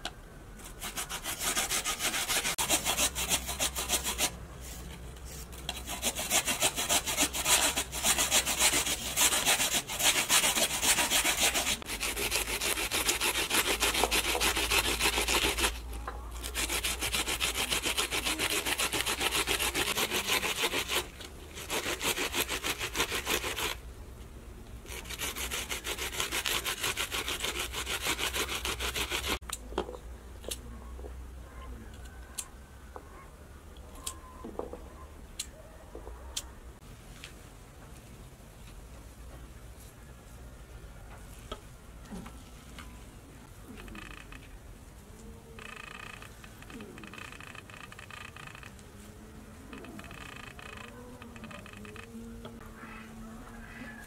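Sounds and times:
potato grated on plastic grater: 5.7 - 15.8, 16.4 - 23.8, 24.9 - 29.4.

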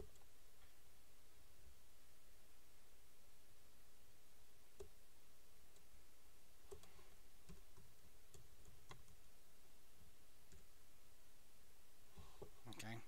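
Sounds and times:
keyboard and mouse clicks: 6.7 - 9.2.

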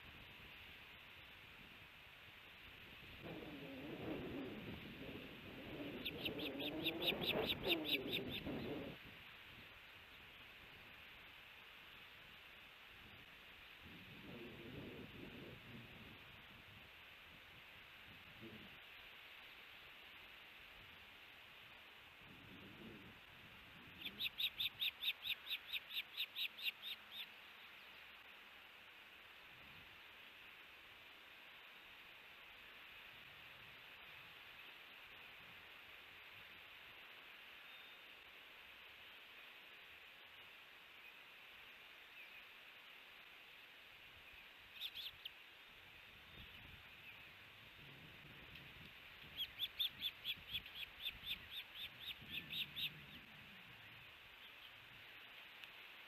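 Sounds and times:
faint outdoor hiss: 0.0 - 56.0
bird sharp high chirps: 6.0 - 8.5, 24.0 - 27.3.

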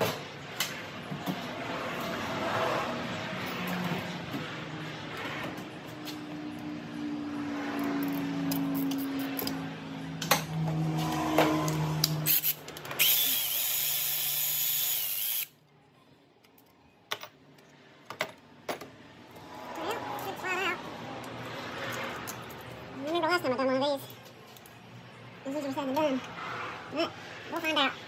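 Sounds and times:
power tool running: 12.0 - 15.5.

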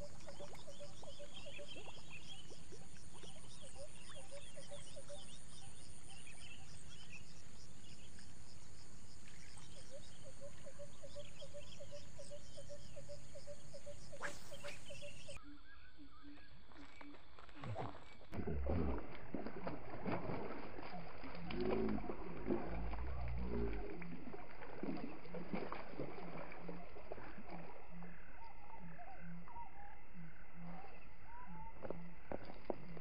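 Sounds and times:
birds chirping: 0.0 - 18.4
frog calling: 9.6 - 18.1
brief swish: 14.1 - 15.0.

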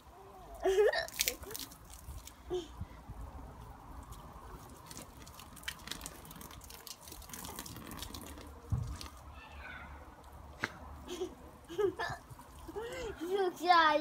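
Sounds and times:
water dripping and splashing: 1.0 - 2.5, 3.2 - 9.3.

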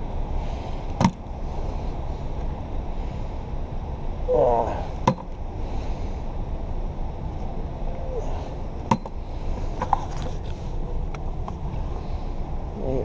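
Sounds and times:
camera rubbing against a coat: 9.7 - 10.8.

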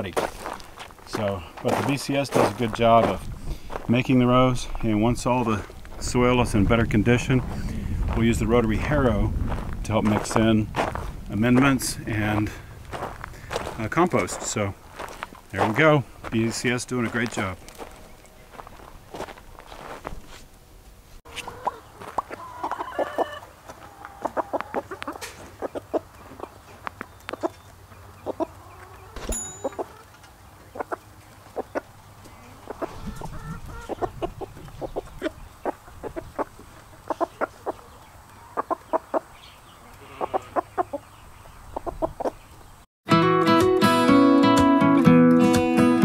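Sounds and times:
hens clucking: 21.3 - 42.7.

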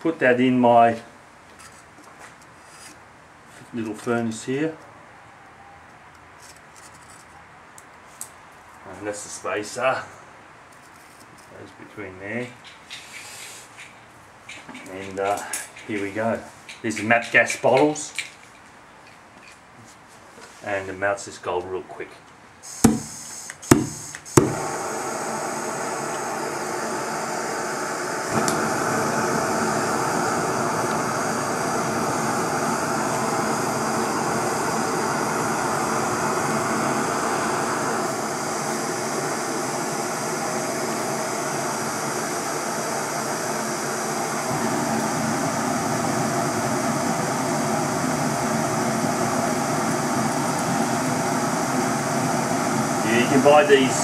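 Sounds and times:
gas torch flame rushing: 22.6 - 54.0.

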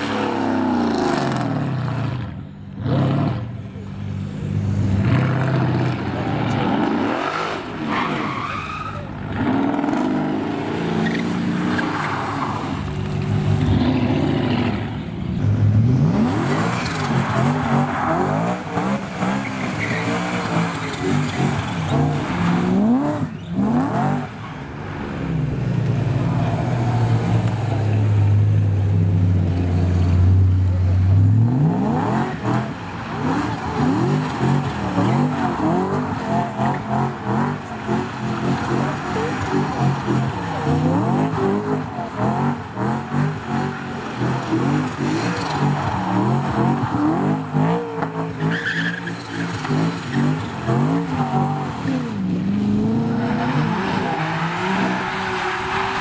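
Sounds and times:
car engines revving: 0.0 - 56.0
tyres squealing: 7.9 - 9.5, 16.5 - 23.8, 33.2 - 51.6.

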